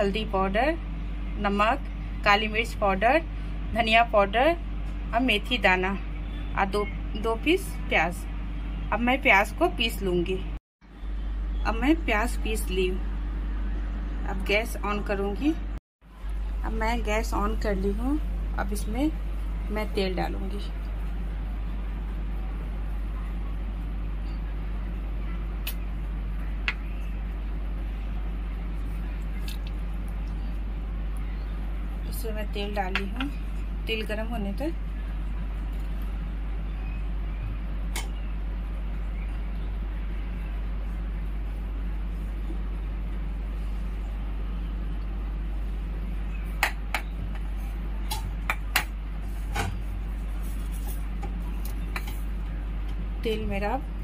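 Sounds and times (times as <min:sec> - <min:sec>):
electric cooktop humming: 0:00.0 - 0:54.0.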